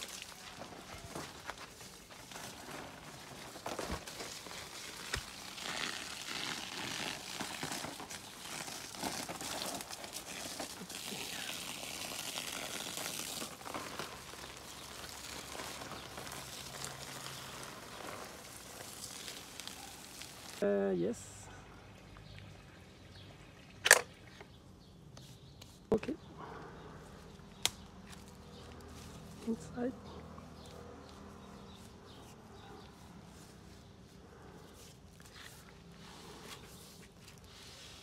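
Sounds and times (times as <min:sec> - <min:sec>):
hose water splashing on soil: 0:00.0 - 0:20.9.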